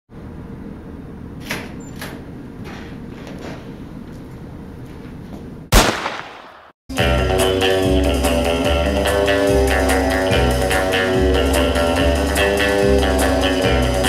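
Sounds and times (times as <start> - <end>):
loud bang: 5.7 - 6.8.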